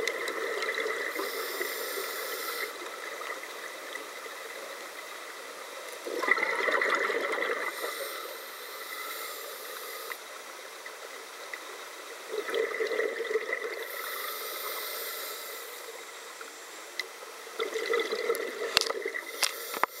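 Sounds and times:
gurgling exhaled bubbles: 0.0s - 1.8s, 6.0s - 7.9s, 12.3s - 13.9s, 17.6s - 19.4s
regulator inhalation hiss: 1.0s - 3.0s, 7.6s - 10.5s, 13.8s - 16.9s, 19.2s - 20.0s.

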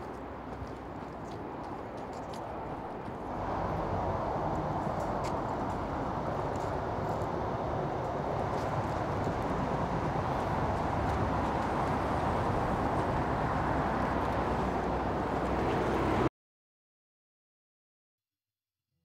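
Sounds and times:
street traffic: 0.0s - 16.3s
car passing by: 2.3s - 16.3s.

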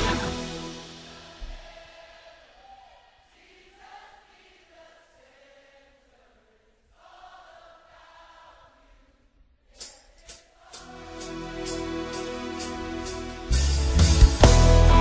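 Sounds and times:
choir-like pad chords: 0.0s - 2.5s, 10.6s - 15.0s
sharp percussive hits: 9.8s - 14.4s.

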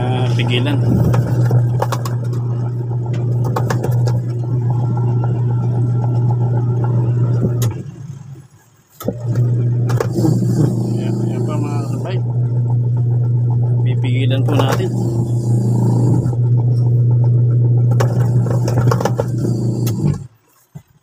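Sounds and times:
washing machine motor humming: 0.0s - 21.0s
clicks and knocks: 0.9s - 4.5s.

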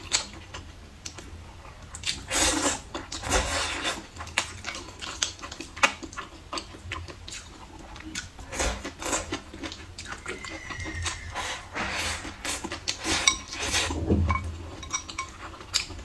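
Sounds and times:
wet chewing and smacking: 0.0s - 11.3s, 14.8s - 16.0s.

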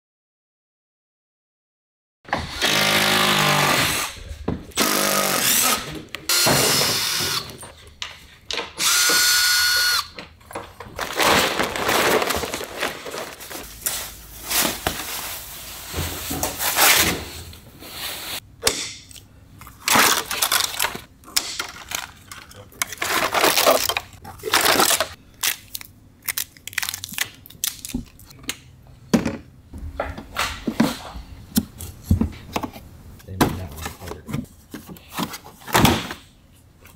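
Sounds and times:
plastic wrapping rustling: 10.6s - 17.4s, 19.8s - 21.1s, 21.7s - 28.2s.

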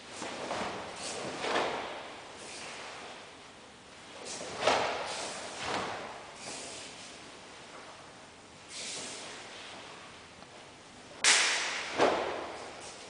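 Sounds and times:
forceful hissing breaths: 6.4s - 7.2s.

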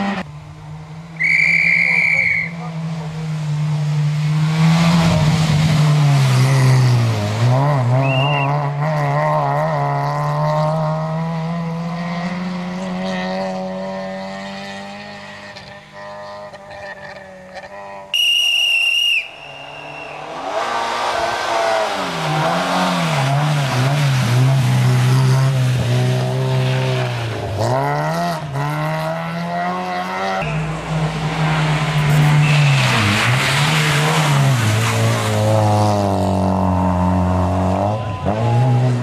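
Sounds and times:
rally car engine revving hard: 0.0s - 0.3s, 2.7s - 18.1s, 19.7s - 39.0s
rushing tyre noise: 0.0s - 39.0s
loud high whistle-like tone: 1.2s - 2.6s, 8.0s - 8.6s, 18.1s - 20.3s, 32.2s - 33.1s.

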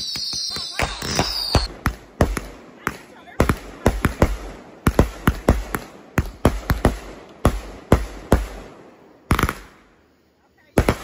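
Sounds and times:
fireworks bangs and pops: 0.0s - 9.8s, 10.7s - 11.0s.

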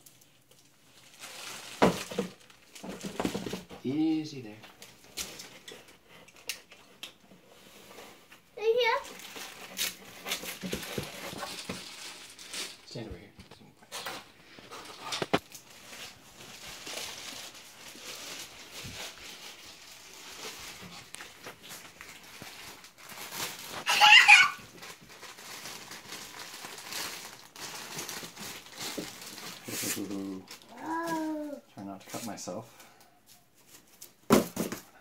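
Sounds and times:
plastic wrapping crinkling: 0.0s - 32.3s.

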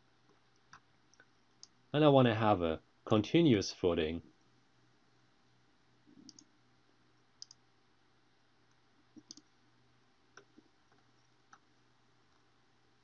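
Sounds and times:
computer mouse clicks: 6.2s - 6.5s, 7.4s - 7.6s, 8.7s - 9.5s, 10.3s - 11.7s.

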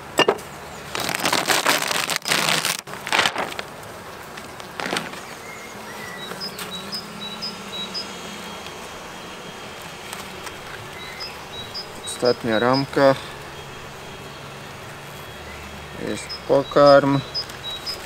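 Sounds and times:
faint hum of bees: 0.0s - 18.0s
plastic sheet crinkling: 0.9s - 5.4s.

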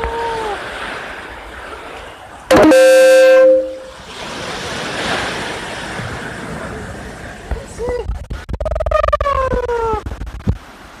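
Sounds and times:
loud horn blast: 2.5s - 4.0s.

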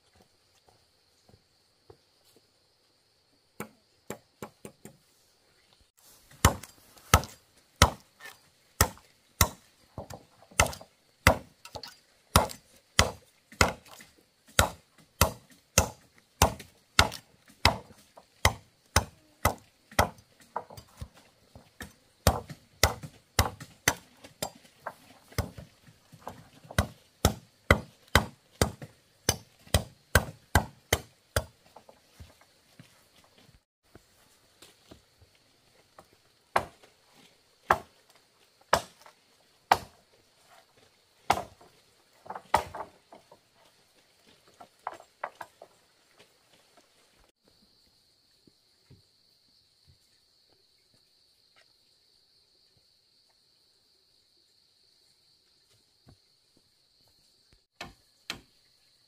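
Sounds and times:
blade chopping: 6.4s - 8.0s, 10.6s - 20.2s, 26.7s - 31.5s.

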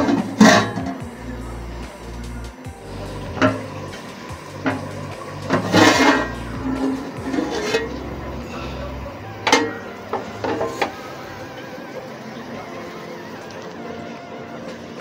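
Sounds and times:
metal pot lid clattering: 0.0s - 1.1s, 3.2s - 8.4s, 9.4s - 11.0s
soft background music: 0.0s - 15.0s.

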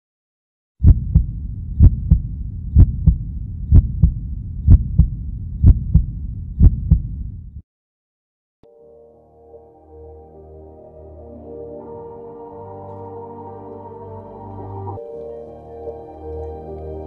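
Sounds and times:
heartbeat thumps: 0.8s - 7.6s
low rumble: 0.8s - 7.6s.

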